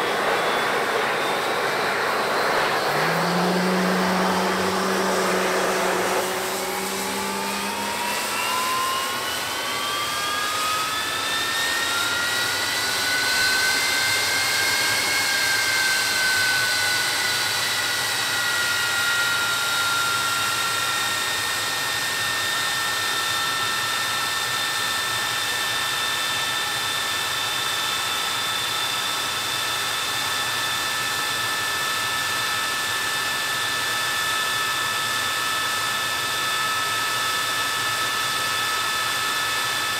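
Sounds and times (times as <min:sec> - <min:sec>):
low hum: 0:00.0 - 0:09.9
jet engine whine: 0:00.0 - 0:39.9
rush of air: 0:00.2 - 0:08.4.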